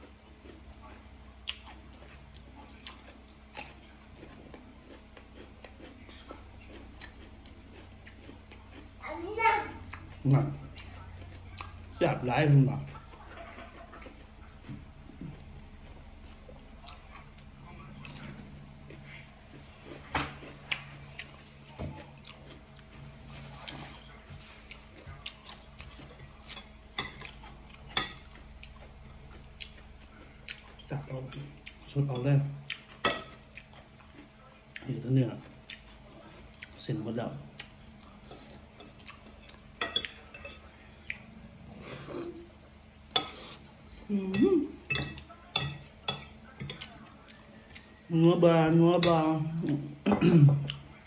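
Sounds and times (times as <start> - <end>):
person chewing food: 0.0 - 9.0, 9.8 - 51.0
cutlery scraping on ceramic plate: 43.1 - 43.6.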